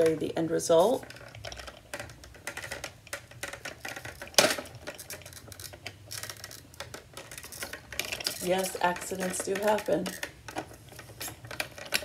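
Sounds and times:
plastic strips clicking and clattering: 0.0s - 12.0s.

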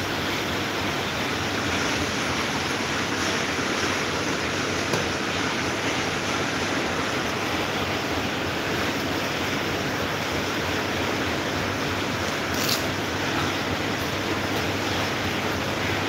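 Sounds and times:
desk fan running: 0.0s - 16.0s.

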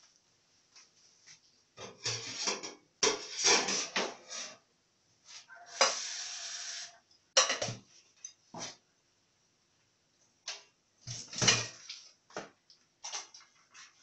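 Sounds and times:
dishes and utensils clattering: 1.8s - 4.6s, 7.4s - 8.4s, 11.1s - 11.9s.

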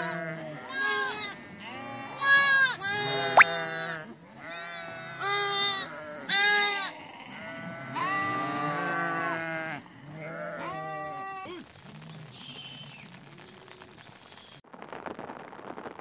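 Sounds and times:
goat kids bleating: 0.0s - 11.5s.

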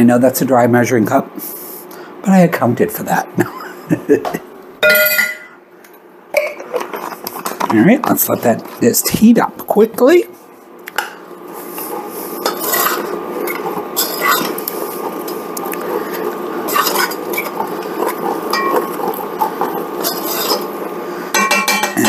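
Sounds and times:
oil bubbling in a pan: 11.8s - 21.8s
utensil clinking against pan: 18.5s - 18.8s, 21.3s - 22.0s.

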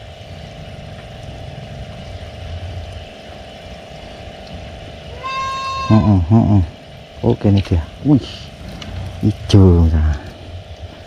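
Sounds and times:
high-pitched call: 5.2s - 6.2s.

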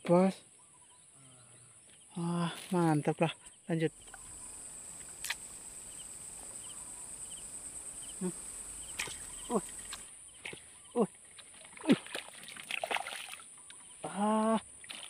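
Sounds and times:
insects droning buzz: 0.6s - 11.1s.

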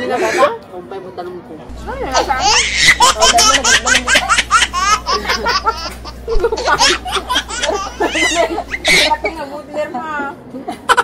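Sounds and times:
women laughing: 1.8s - 9.4s, 10.5s - 11.0s.

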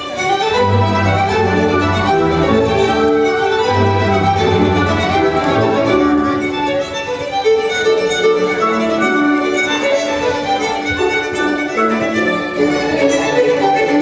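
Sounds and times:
instrumental music: 0.0s - 14.0s.

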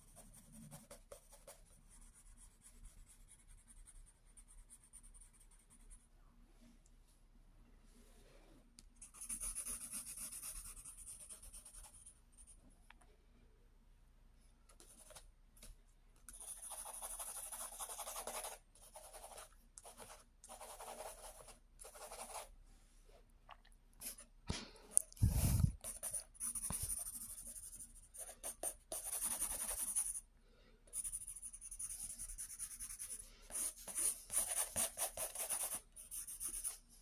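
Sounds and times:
pencil scratching on paper: 0.0s - 6.0s, 9.0s - 12.5s, 16.3s - 22.5s, 25.2s - 30.2s, 30.9s - 36.8s.

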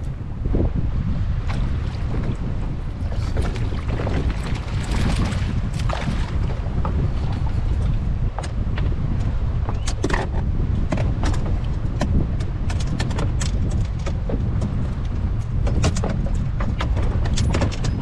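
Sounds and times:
boat engine and hull rumble: 0.0s - 18.0s
wind on microphone: 0.0s - 18.0s
sharp clicks and knocks: 9.7s - 18.0s.

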